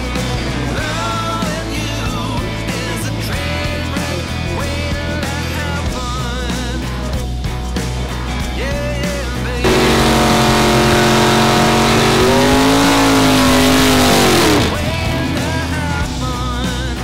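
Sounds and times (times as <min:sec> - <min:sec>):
rock music: 0:00.0 - 0:17.0
car engine revving: 0:09.6 - 0:15.3.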